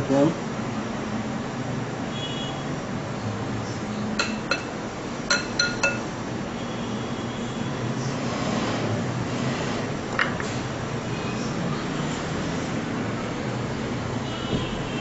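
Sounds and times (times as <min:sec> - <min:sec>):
clinks on a plate: 0:04.2 - 0:06.1.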